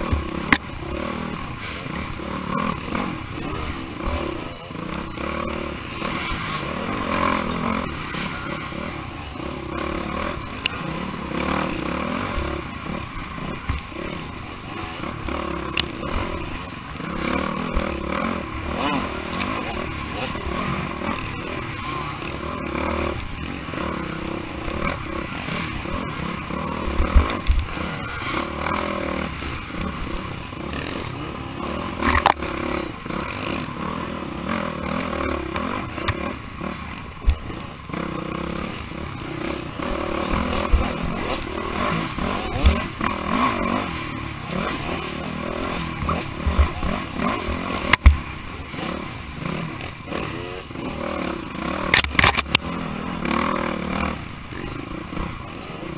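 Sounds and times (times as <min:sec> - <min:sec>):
bike rattling: 0:00.0 - 0:55.9
dirt bike engine revving: 0:00.0 - 0:55.9
sharp knocks on bumps: 0:47.9 - 0:48.2.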